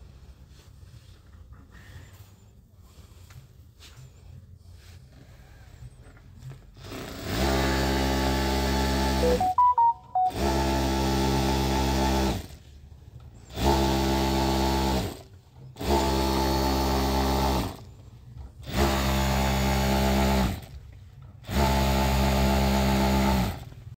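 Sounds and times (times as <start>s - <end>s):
industrial sewing machine stitching: 6.8s - 9.2s, 13.5s - 17.8s, 18.6s - 20.8s, 21.4s - 23.7s.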